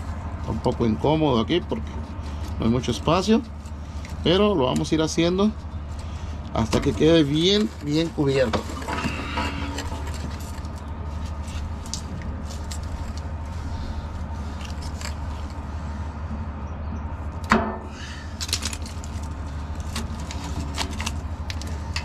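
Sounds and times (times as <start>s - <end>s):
steady low hum: 0.0s - 22.0s
electrical tape crackling and ripping: 5.5s - 15.8s, 18.3s - 22.0s.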